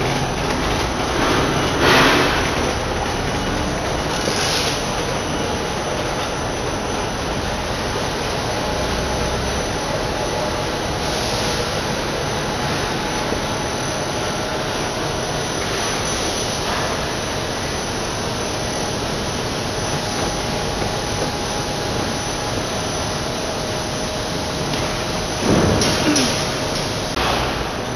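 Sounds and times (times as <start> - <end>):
mechanical din: 0.0 - 5.3.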